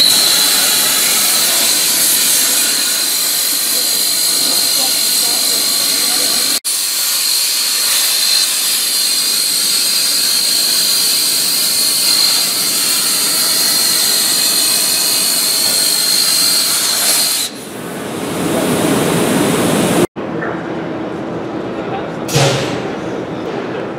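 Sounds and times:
high whine: 0:00.0 - 0:06.6
drilling spindle machining steel: 0:00.0 - 0:17.7.

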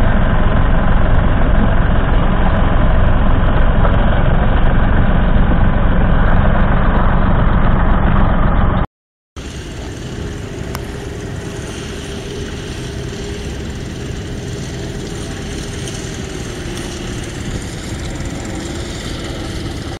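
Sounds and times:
tractor diesel engine running: 0:00.0 - 0:08.8, 0:09.4 - 0:20.0.

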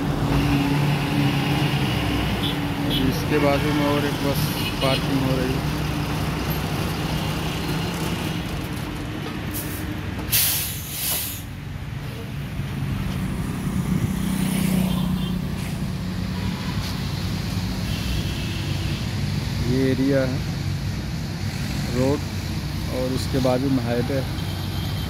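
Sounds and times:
bus engine idling: 0:02.7 - 0:13.0
air brakes hissing: 0:09.5 - 0:11.5.

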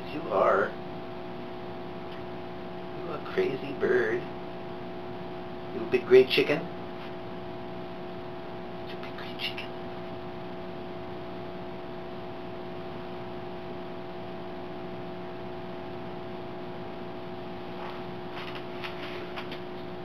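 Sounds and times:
electrical hum: 0:00.0 - 0:20.0.

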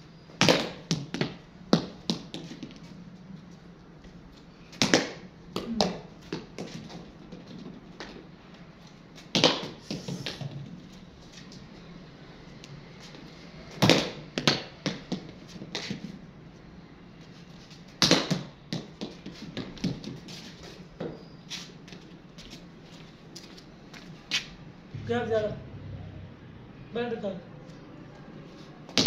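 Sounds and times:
ball bouncing on concrete floor: 0:00.3 - 0:02.9, 0:04.7 - 0:08.3, 0:09.2 - 0:10.7, 0:13.7 - 0:16.2, 0:18.0 - 0:21.2.

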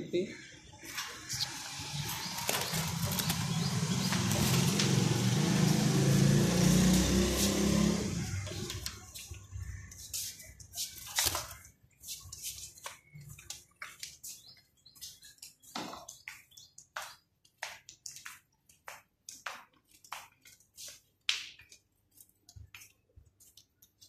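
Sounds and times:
bird chip calls: 0:00.2 - 0:05.6.

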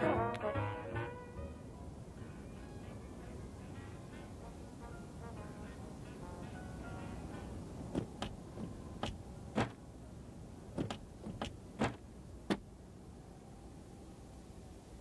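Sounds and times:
fists banging on window: 0:07.9 - 0:09.8, 0:10.8 - 0:12.6.

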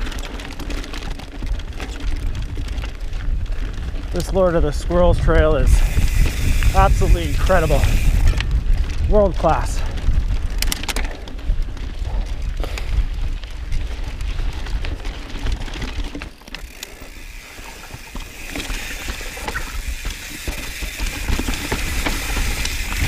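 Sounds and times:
bike rattling and clicking: 0:00.0 - 0:23.0
bike tyres on dirt and rock: 0:00.0 - 0:23.0
wind on microphone: 0:01.6 - 0:15.9, 0:18.8 - 0:23.0.

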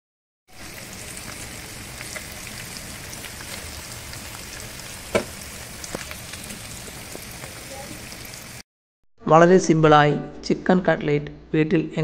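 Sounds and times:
cutlets sizzling in hot oil: 0:00.5 - 0:08.6.

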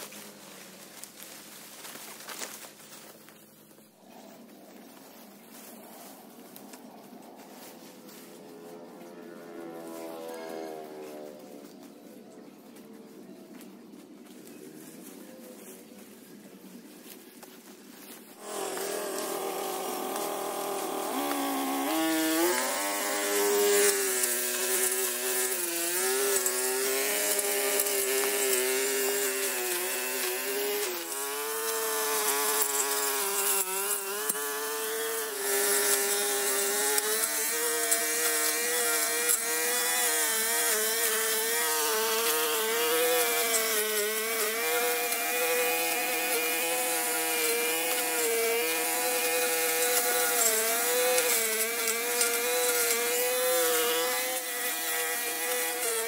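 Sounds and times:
two-stroke engine revving: 0:18.4 - 0:56.0.

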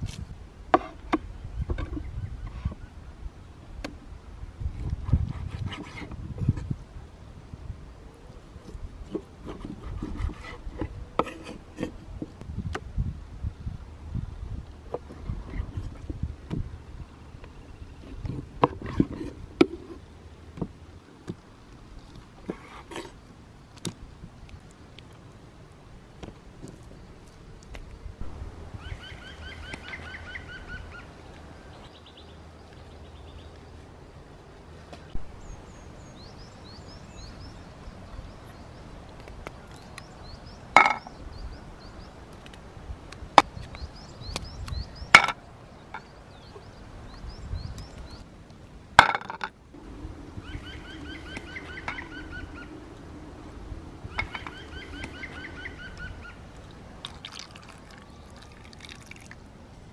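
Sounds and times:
birdsong: 0:00.7 - 0:04.0, 0:26.2 - 0:48.3, 0:49.8 - 0:59.4
cackling bird calls: 0:50.4 - 0:52.8.

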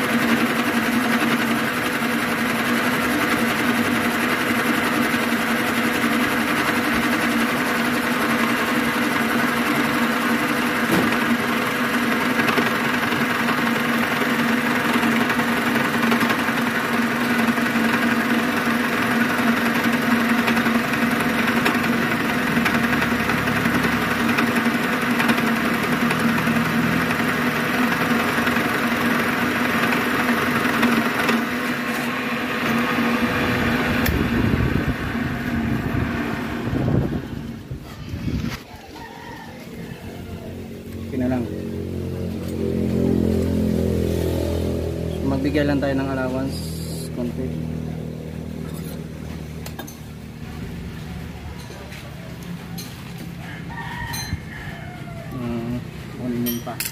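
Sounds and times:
boring machine cutting metal: 0:00.0 - 0:36.7.

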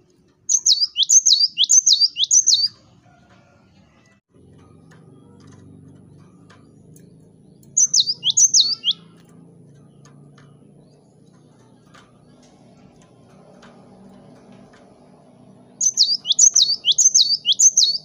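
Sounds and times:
bird calling sharp high notes: 0:00.5 - 0:02.8, 0:07.7 - 0:09.2, 0:15.8 - 0:18.0.

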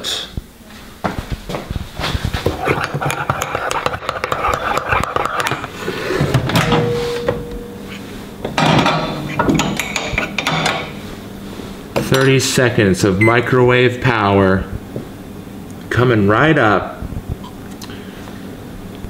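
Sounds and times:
microwave door shutting: 0:06.2 - 0:07.8.

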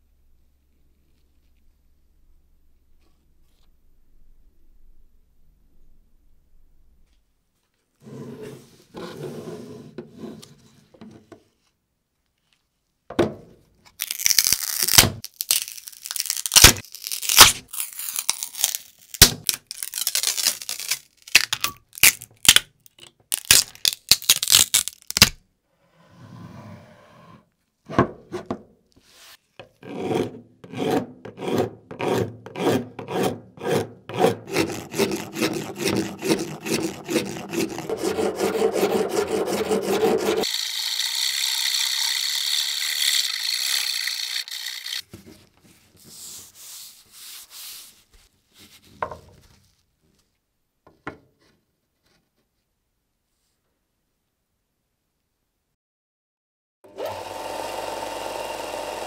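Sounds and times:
plastic crackling and tearing: 0:13.9 - 0:25.4
metal blade scraping resin: 0:29.8 - 0:40.6, 0:42.0 - 0:45.0.

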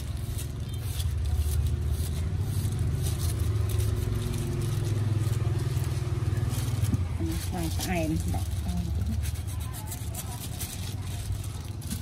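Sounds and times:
engine running with low hum: 0:00.4 - 0:09.2.

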